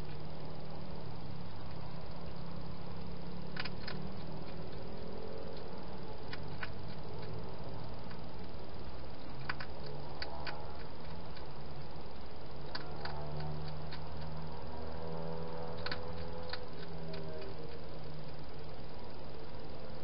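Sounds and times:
steady low hum: 0.0 - 20.0
hedgehog crunching food: 3.0 - 18.5.

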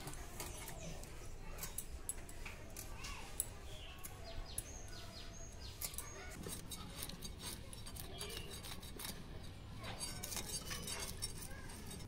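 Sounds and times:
fish scales scraped on blade: 5.7 - 12.0.

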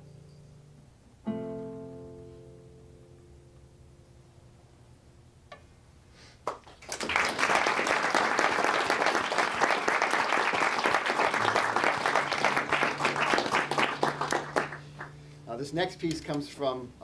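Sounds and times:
audience applauding: 6.4 - 15.3.

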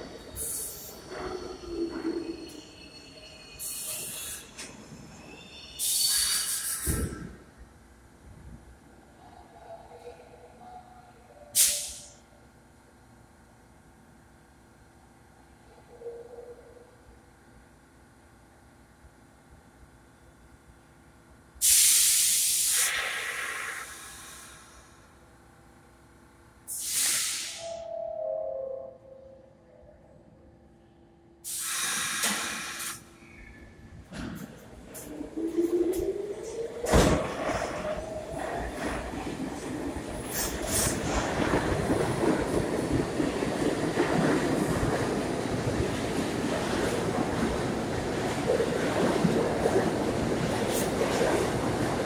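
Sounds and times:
subway train rumble: 0.0 - 52.0
train compressed air hiss: 0.4 - 1.0, 3.6 - 4.6, 5.7 - 7.3, 11.5 - 12.2, 21.6 - 25.1, 26.6 - 27.9, 31.4 - 33.2, 40.3 - 41.1.

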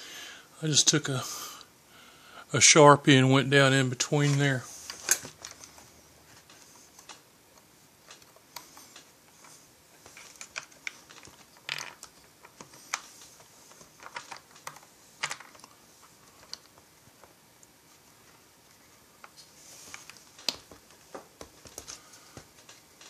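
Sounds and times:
plastic parts clicking and tapping: 8.0 - 15.7.

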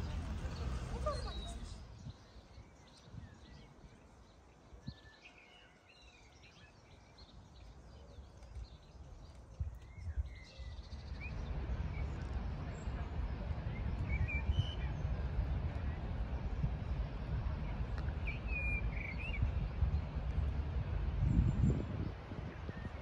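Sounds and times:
low rumbling noise: 0.0 - 2.2, 10.7 - 23.0
small birds chirping: 0.0 - 16.2.

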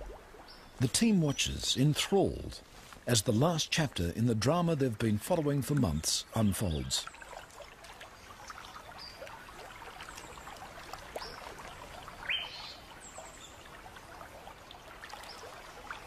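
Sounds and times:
water trickling: 0.0 - 16.0
bird chirps: 12.2 - 13.6.

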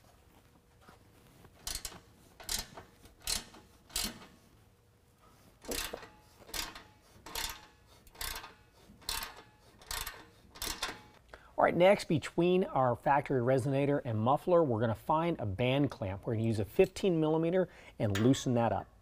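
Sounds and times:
ratchet wrench clicking: 1.6 - 4.3, 5.6 - 11.2.

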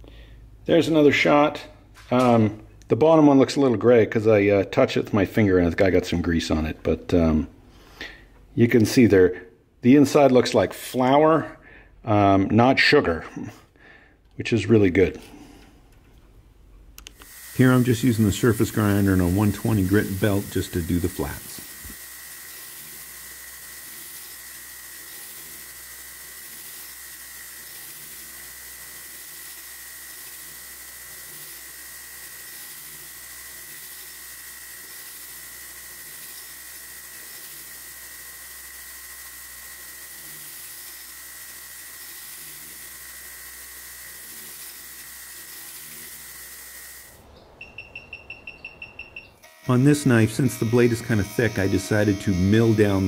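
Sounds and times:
belt grinder grinding steel: 17.1 - 47.2, 48.6 - 53.0.

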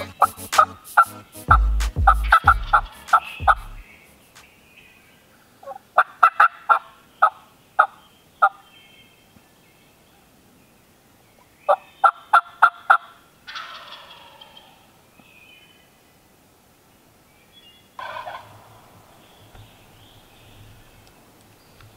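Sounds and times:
turkey gobble: 0.0 - 3.8, 5.6 - 8.6, 12.0 - 14.8, 18.0 - 19.7
turkey call notes: 0.0 - 4.5, 18.0 - 20.3.

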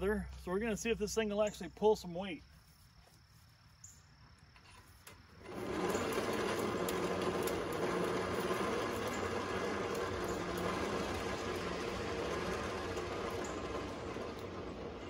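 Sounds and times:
electric winch motor running: 5.1 - 15.0.

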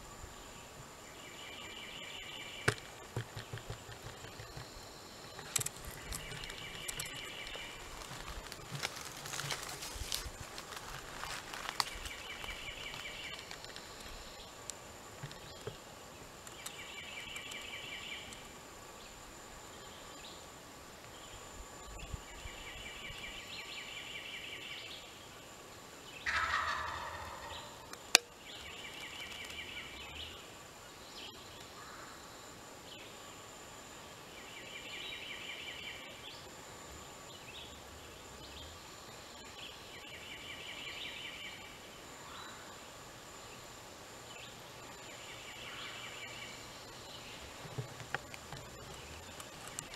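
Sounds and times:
turkey gobbling loudly: 26.2 - 27.9.

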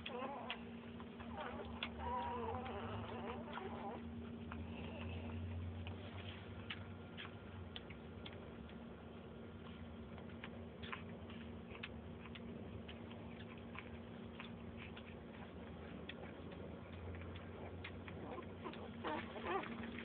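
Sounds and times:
puppies suckling clicks and smacks: 0.0 - 20.0
steady low hum: 0.0 - 20.0.

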